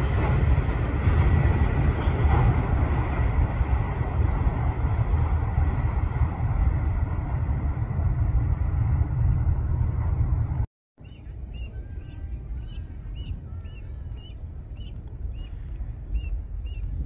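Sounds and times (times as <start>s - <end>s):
freight train rumbling past: 0.0s - 17.0s
goslings peeping: 11.0s - 16.9s.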